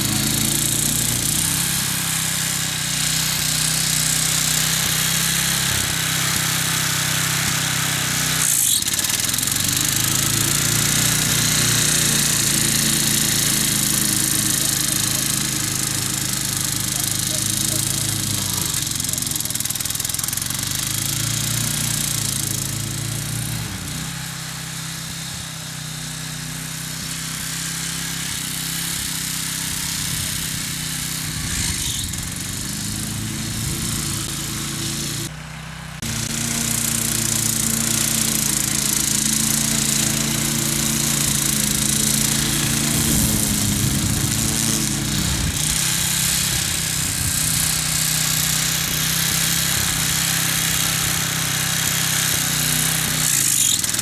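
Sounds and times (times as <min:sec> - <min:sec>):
ride-on mower engine running: 0:00.0 - 0:54.0.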